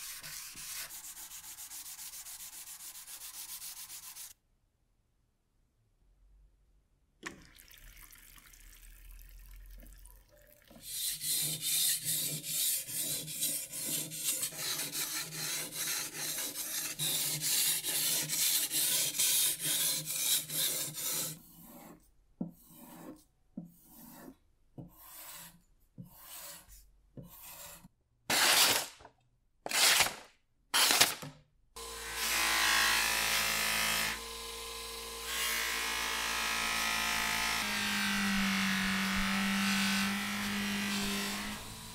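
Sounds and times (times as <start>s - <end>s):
blade rubbing on whetstone: 10.8s - 22.0s, 22.6s - 23.2s, 23.8s - 28.8s.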